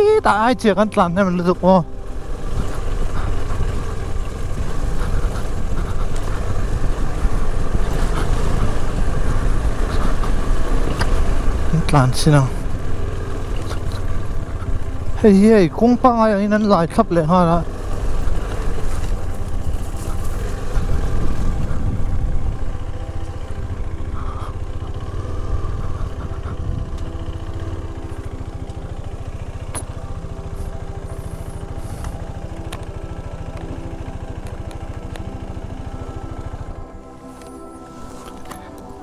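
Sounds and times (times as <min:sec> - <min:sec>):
small motor running: 0:17.6 - 0:38.6.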